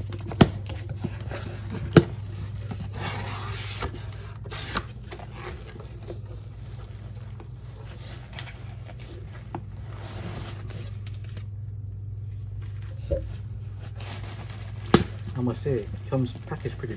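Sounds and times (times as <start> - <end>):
steady low hum: 0.0 - 16.9.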